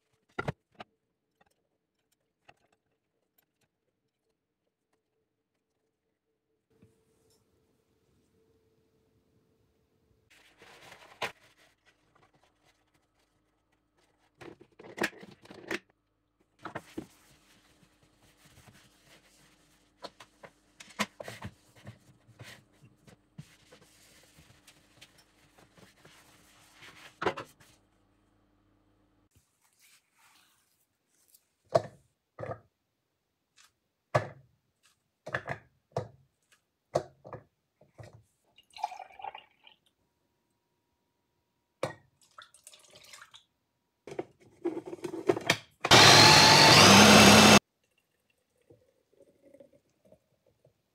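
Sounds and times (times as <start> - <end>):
milk pouring into glass: 38.5 - 39.9, 42.2 - 43.3, 47.7 - 50.4.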